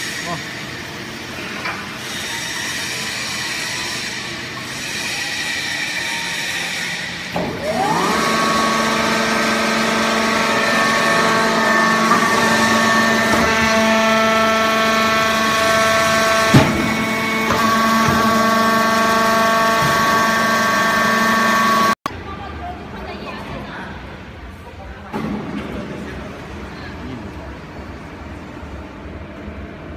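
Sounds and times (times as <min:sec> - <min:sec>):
baler motor and pump whining: 0:00.0 - 0:22.0.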